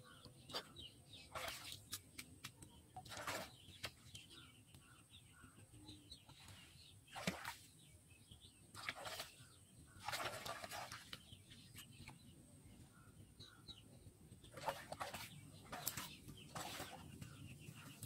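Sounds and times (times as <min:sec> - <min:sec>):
pond water splashing: 0:01.2 - 0:02.4, 0:03.0 - 0:04.0, 0:07.1 - 0:07.8, 0:08.7 - 0:12.1, 0:14.4 - 0:17.4.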